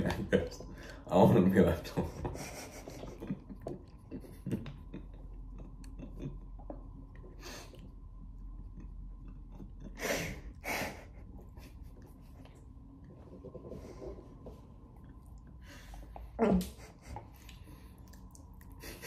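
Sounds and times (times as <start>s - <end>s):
chewing: 3.5s - 10.0s, 17.3s - 18.8s.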